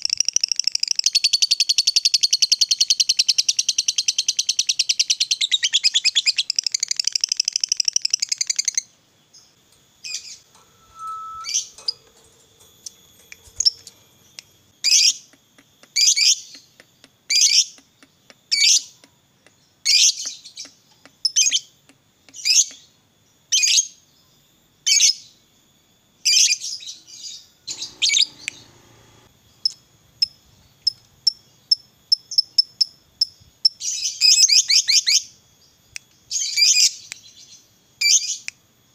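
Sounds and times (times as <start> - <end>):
lovebird chirps: 0.0 - 19.0, 26.3 - 32.9
lovebird chattering trill: 27.7 - 28.8.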